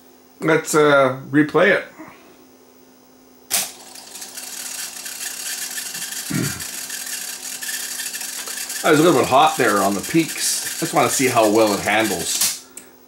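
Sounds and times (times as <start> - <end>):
tape mechanism whirring hiss: 3.5 - 12.9.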